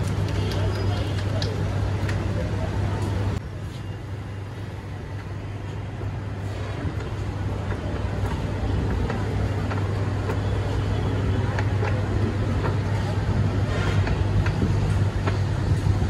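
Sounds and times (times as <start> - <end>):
low mechanical hum: 0.0 - 16.0
street noise: 0.0 - 16.0.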